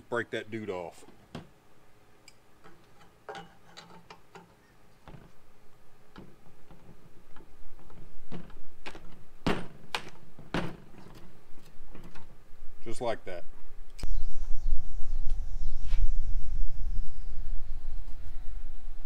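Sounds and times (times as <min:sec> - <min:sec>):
sharp cracks: 0:08.3 - 0:11.8.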